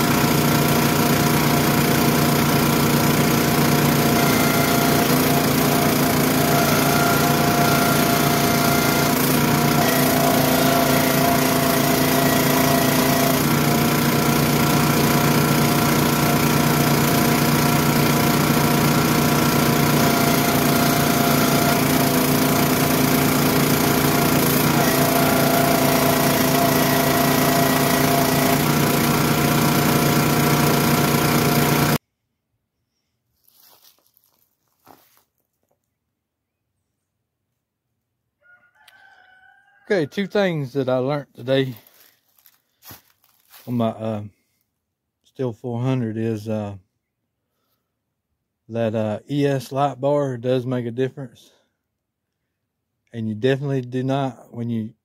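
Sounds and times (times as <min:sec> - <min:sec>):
small gasoline engine running: 0:00.0 - 0:32.0, 0:41.6 - 0:43.8.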